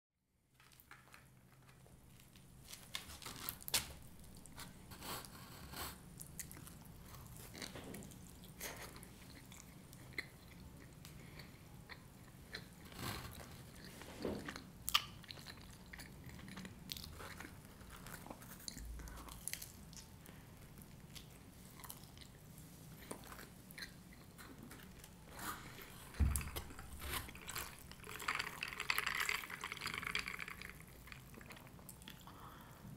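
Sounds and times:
pizza crunching while chewed: 0.6 - 32.7.

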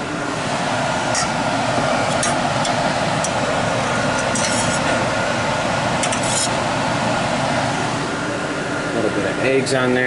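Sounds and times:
fan drone: 0.0 - 10.0
metal spatula scraping a skillet: 4.2 - 5.0, 6.0 - 6.5.

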